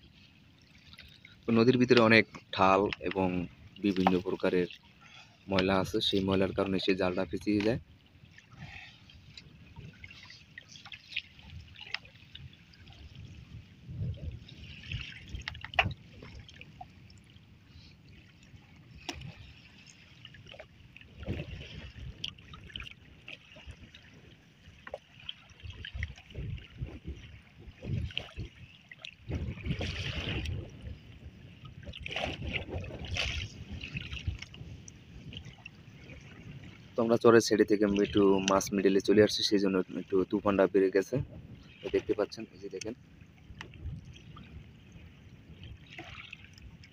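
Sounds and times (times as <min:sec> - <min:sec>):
wind on microphone: 0:08.5 - 0:24.4, 0:25.4 - 0:39.3, 0:40.4 - 0:46.9
light knocks on a boat: 0:15.4 - 0:16.0.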